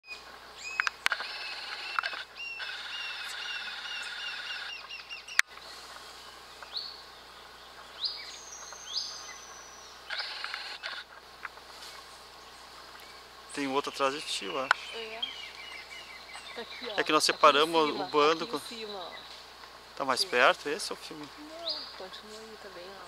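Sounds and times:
high animal chirps: 0.6s - 5.6s, 8.0s - 11.2s.

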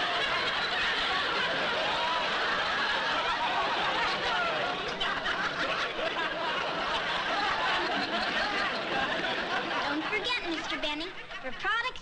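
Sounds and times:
audience laughing: 0.0s - 12.0s.

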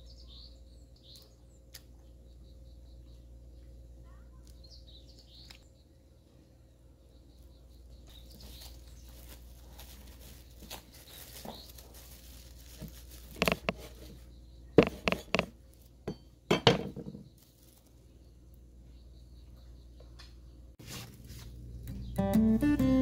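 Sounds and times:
cling wrap crinkling: 8.1s - 14.2s, 17.3s - 18.1s
knocks on wooden cutting board: 14.8s - 15.5s.

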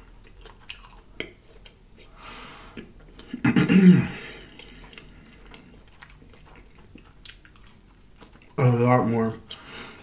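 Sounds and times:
man breathing: 2.1s - 2.9s, 4.0s - 5.3s, 9.5s - 10.0s
loud throat sound: 3.3s - 4.2s.

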